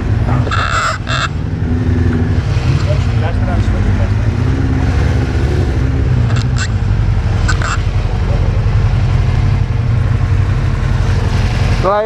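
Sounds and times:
motorcycle engines idling: 0.0s - 12.0s
high-pitched squeaks: 0.3s - 1.4s, 6.3s - 6.8s, 7.4s - 7.9s.

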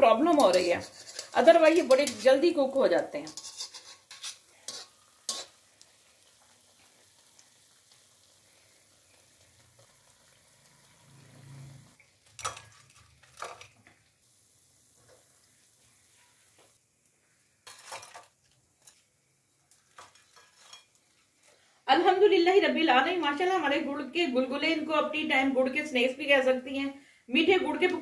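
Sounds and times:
oil sizzling: 0.0s - 26.8s.

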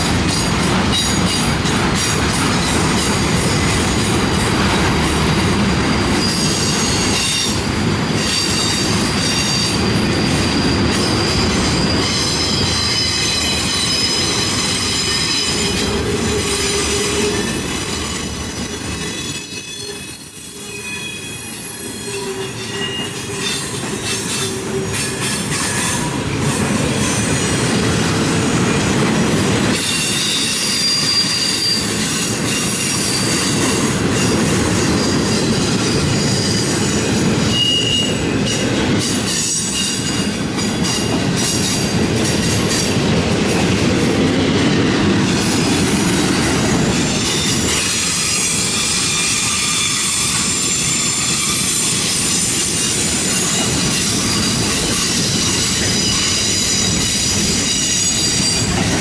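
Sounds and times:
train wheels rumbling on rail: 0.0s - 59.0s
high-pitched wheel squeal: 6.2s - 26.0s, 29.8s - 31.9s, 37.5s - 38.6s, 47.1s - 52.5s, 53.4s - 58.7s.

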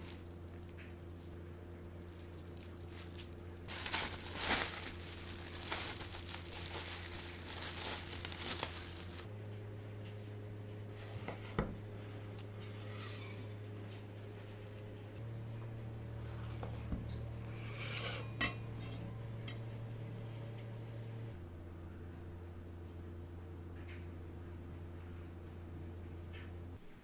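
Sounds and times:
cling film crinkling: 0.0s - 9.3s.

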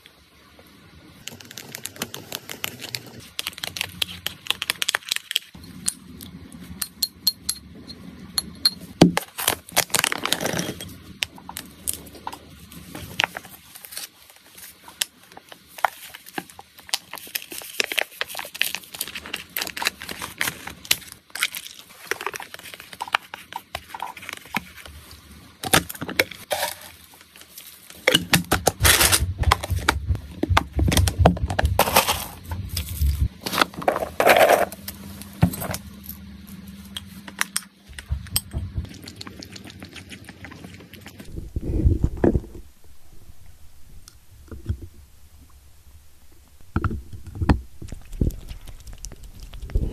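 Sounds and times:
foil pouch crinkling: 1.2s - 5.6s, 9.2s - 10.9s, 11.5s - 35.1s
scissors cutting foil: 1.2s - 5.6s
spoon scraping a plastic bowl: 26.5s - 27.0s
dry treats clattering in container: 30.6s - 34.8s.

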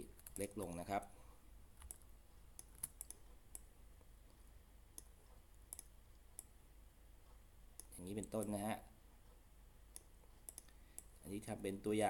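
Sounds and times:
computer mouse clicks: 1.8s - 6.6s, 7.8s - 8.6s, 9.9s - 11.1s.

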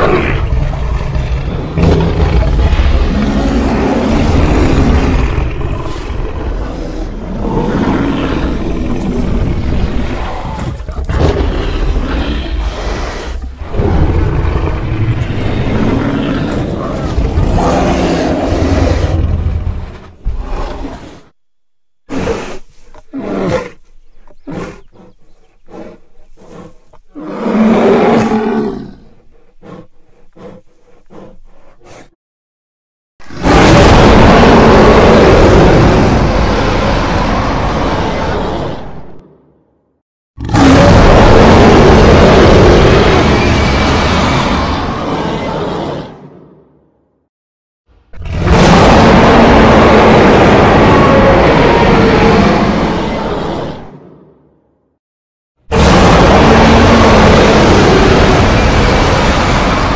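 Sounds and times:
long continuous roar: 55.7s - 59.9s.

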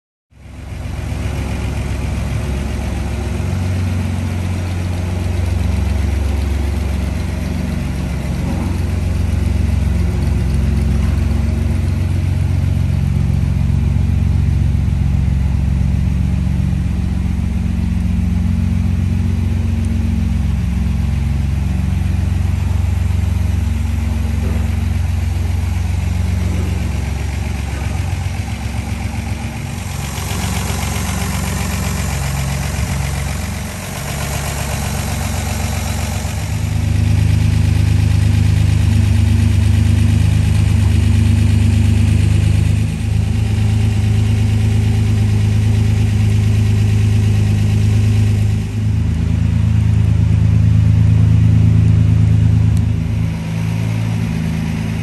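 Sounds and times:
car engine idling: 0.4s - 55.0s.

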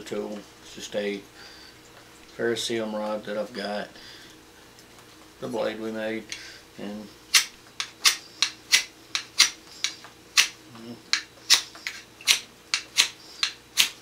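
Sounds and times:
knife scraping ferrocerium rod: 7.3s - 10.5s, 11.1s - 14.0s.

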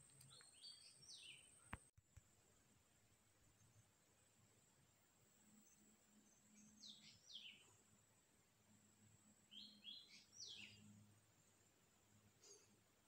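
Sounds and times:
faint bird chirps: 0.0s - 1.8s, 5.5s - 7.9s, 9.4s - 11.1s, 12.3s - 12.8s.

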